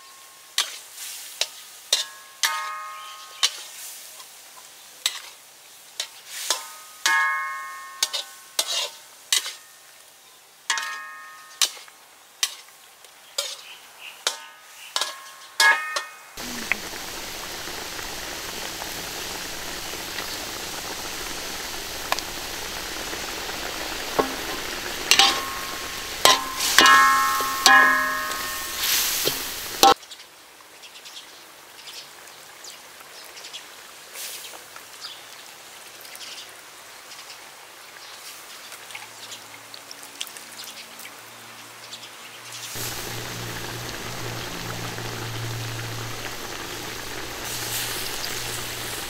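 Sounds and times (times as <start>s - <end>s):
curry sizzling and bubbling: 0.0s - 10.1s, 10.7s - 15.2s, 16.4s - 30.0s, 42.6s - 49.0s
ladle knocking steel wok: 23.8s - 30.0s.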